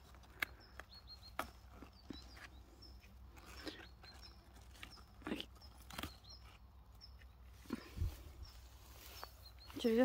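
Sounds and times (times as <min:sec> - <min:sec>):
flower stems snapping: 0:00.0 - 0:02.2, 0:03.2 - 0:06.5
bird chirps: 0:00.0 - 0:10.0
leaves and straw rustling: 0:00.0 - 0:10.0.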